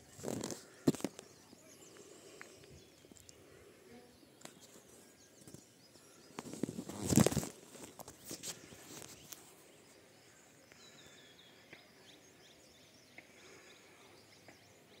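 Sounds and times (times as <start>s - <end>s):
faint bird chirps: 0.0s - 15.0s
soft rustles and clicks: 4.4s - 9.7s.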